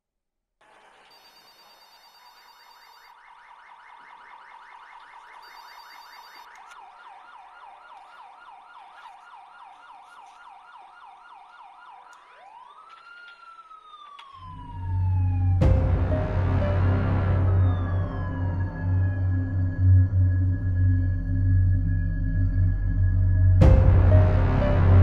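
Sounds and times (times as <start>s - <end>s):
emergency siren yelping and wailing: 1.1s - 24.2s
low dark music drone: 14.4s - 25.0s
sharp music hit: 15.6s - 19.0s.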